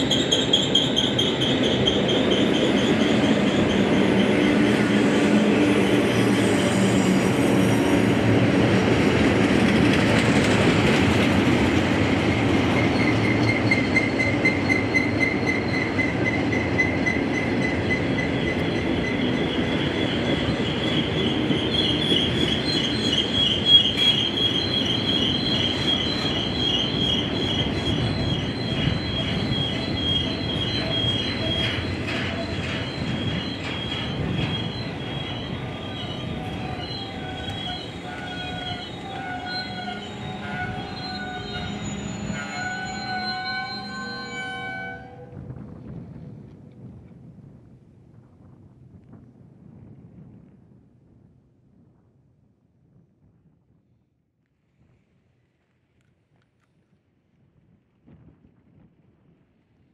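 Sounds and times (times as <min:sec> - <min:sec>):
metal wheel squeal: 0:00.0 - 0:04.5, 0:12.8 - 0:45.2
low rumble of train cars: 0:00.0 - 0:52.3.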